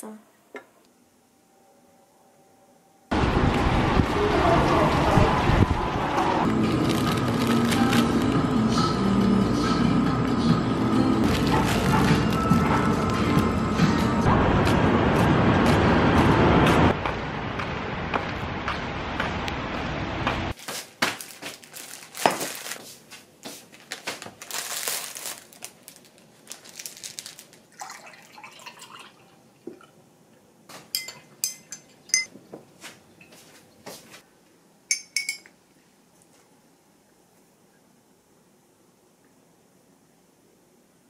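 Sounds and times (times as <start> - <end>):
street traffic: 3.1 - 20.6
plastic bag crinkling: 6.5 - 8.4, 11.2 - 13.2, 20.6 - 22.8, 23.6 - 28.4
dishes and glass clinking: 30.9 - 32.4, 34.9 - 35.5.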